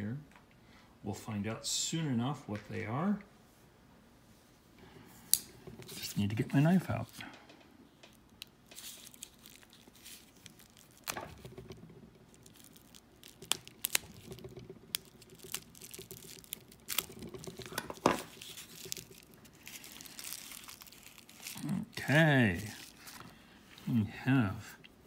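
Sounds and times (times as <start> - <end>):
plastic wrap crinkling and tearing: 8.0 - 23.4.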